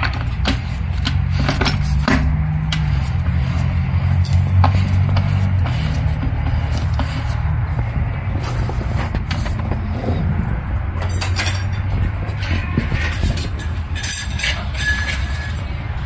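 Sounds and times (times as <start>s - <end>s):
metal parts clinking: 11.0s - 12.0s, 13.0s - 16.0s.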